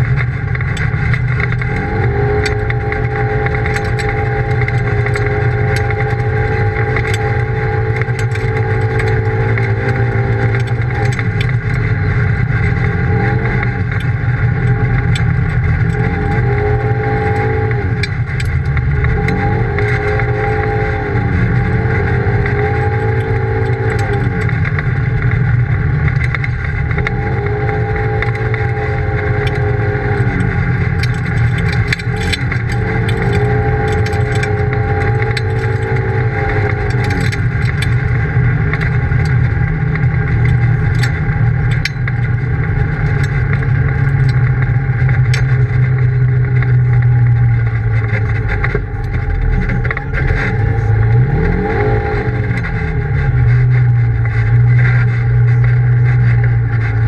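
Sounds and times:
low rumble of driving noise: 0.0 - 57.0
utility vehicle engine running: 0.0 - 57.0.

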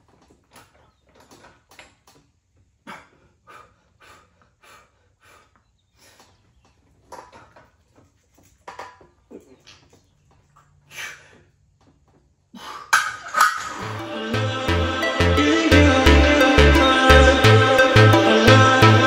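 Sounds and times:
man breathing forcefully: 2.8 - 6.4.

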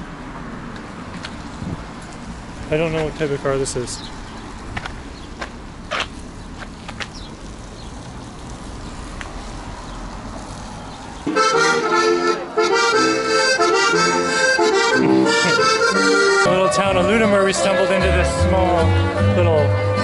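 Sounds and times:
low outdoor rumble: 0.0 - 11.2
accordion folk music: 11.3 - 20.0.

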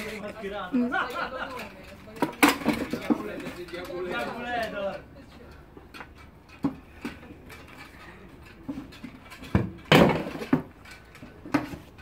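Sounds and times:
weapons and shields clashing: 8.8 - 12.0.

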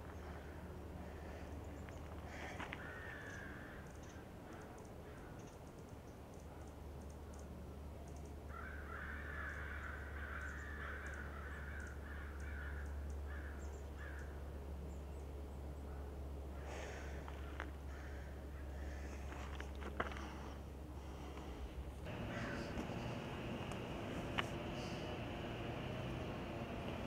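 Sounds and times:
steady low hum: 0.0 - 5.0, 12.9 - 27.0
bird calling: 22.1 - 27.0.

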